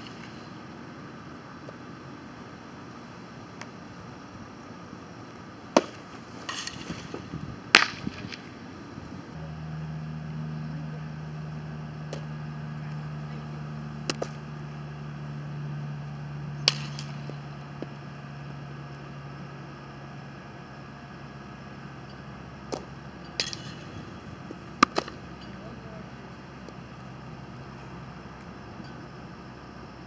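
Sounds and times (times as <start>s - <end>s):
steady low hum: 0.0s - 30.0s
softball smacking into gloves: 5.8s - 6.0s, 14.0s - 14.4s.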